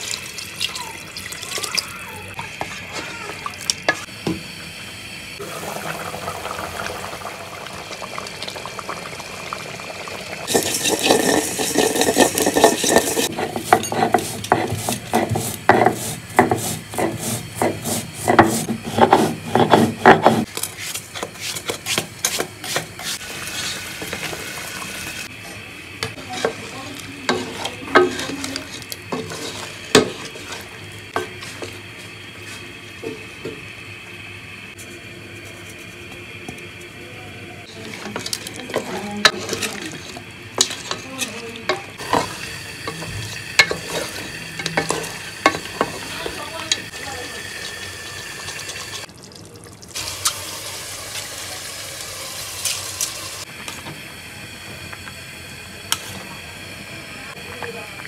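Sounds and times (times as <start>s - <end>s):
water poured into a pot: 0.0s - 1.9s, 5.4s - 13.2s, 46.9s - 53.4s
curry sizzling: 0.0s - 36.4s, 37.6s - 58.0s
curry simmering and stirred: 10.4s - 32.1s, 37.6s - 51.5s
stone roller grinding spices: 10.5s - 24.5s, 25.4s - 33.2s, 37.7s - 49.1s.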